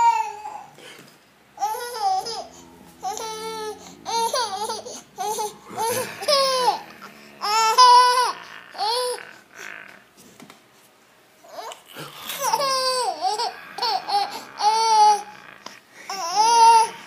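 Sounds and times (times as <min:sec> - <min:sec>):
baby laughing in squeals: 0:00.0 - 0:00.7, 0:01.6 - 0:09.3, 0:11.5 - 0:15.4.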